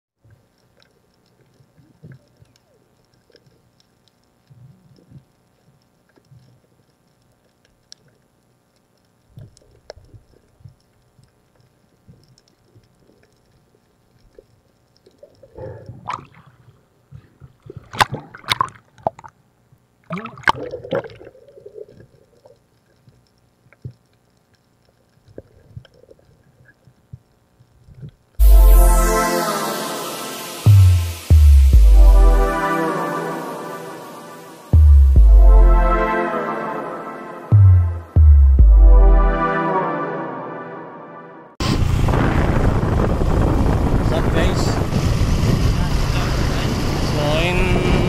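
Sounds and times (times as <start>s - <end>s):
faint clicks: 0.2s - 16.0s, 21.7s - 28.4s
water gurgling and sloshing: 15.2s - 23.2s
loud hit: 28.4s - 36.2s.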